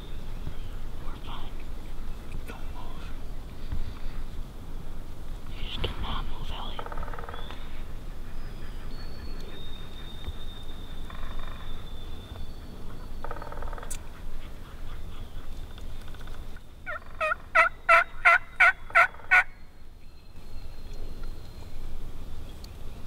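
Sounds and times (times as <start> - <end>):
turkey gobbles: 16.9 - 19.5
turkey yelps: 16.9 - 19.5.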